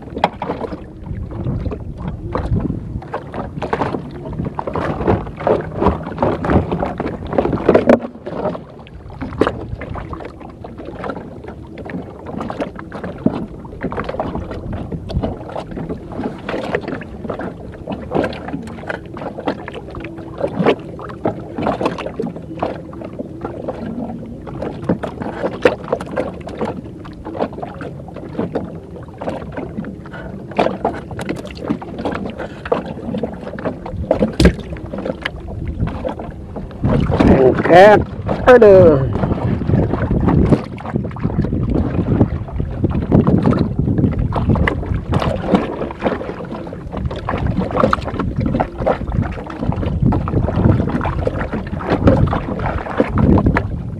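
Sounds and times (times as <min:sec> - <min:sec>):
water slapping against boat hull: 0:00.0 - 0:53.9
knocks against wooden boat: 0:34.2 - 0:34.6.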